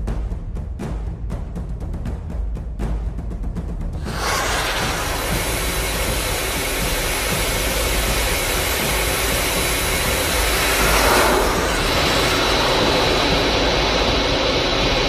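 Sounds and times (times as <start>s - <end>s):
missile jet roar: 4.0s - 15.0s.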